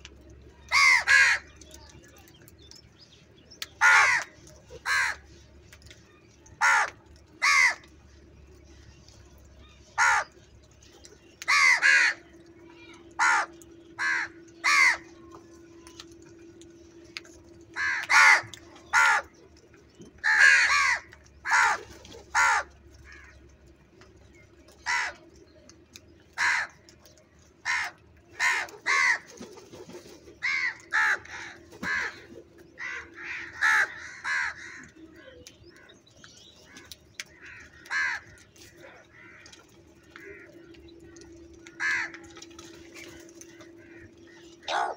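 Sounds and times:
crows cawing: 0.7 - 1.5, 3.8 - 5.3, 6.6 - 7.9, 9.9 - 10.4, 11.4 - 12.2, 13.1 - 15.1, 17.7 - 19.3, 20.2 - 23.4, 24.8 - 25.2, 26.4 - 26.8, 27.6 - 29.3, 30.4 - 35.0, 36.7 - 44.9.

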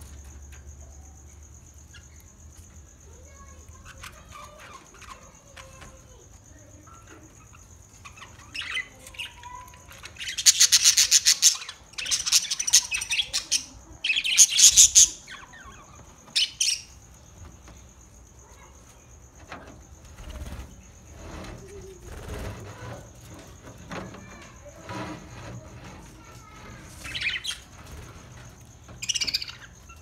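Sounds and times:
budgerigars chirping and chattering: 8.0 - 17.0, 27.0 - 27.8, 29.0 - 30.0.

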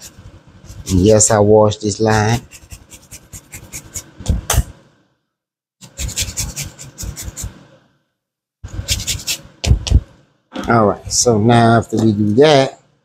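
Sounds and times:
grater rasping: 2.4 - 4.1, 5.8 - 7.6.

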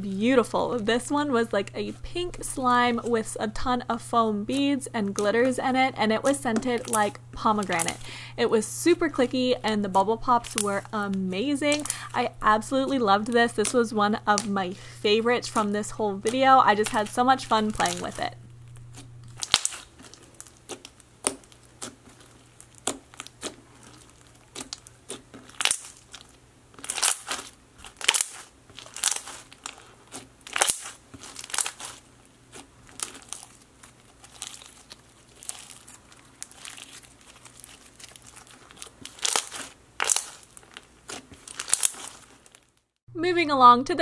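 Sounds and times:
slime squished by hand: 18.9 - 42.6.

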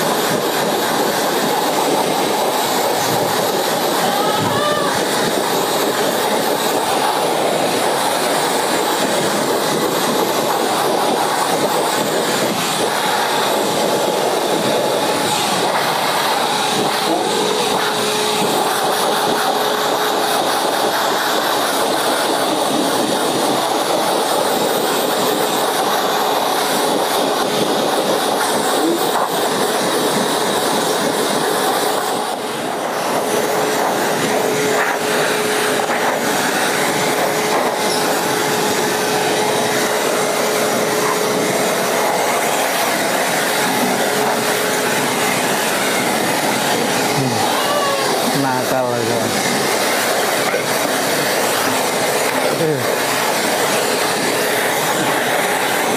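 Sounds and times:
shop vacuum blowing air: 0.0 - 55.9.

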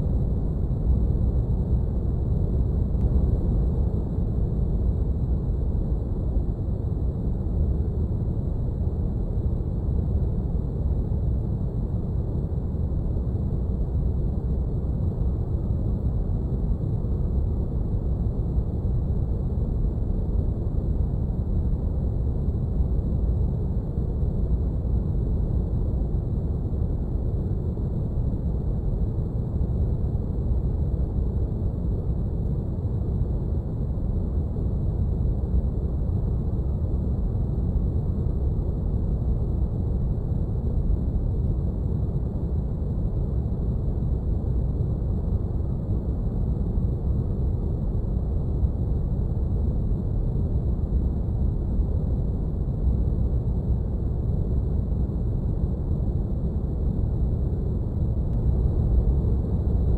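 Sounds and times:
steady deep rumble: 0.0 - 59.9.

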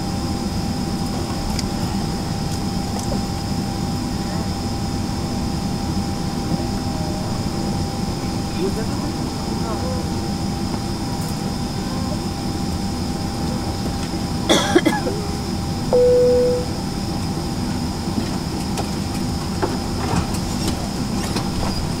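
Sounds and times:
aircraft cabin air system hum: 0.0 - 22.0
short beep: 16.0 - 16.8.

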